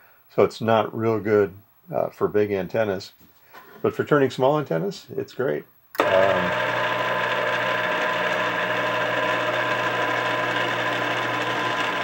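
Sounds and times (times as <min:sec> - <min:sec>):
antenna rotator motor humming: 0:06.0 - 0:12.0.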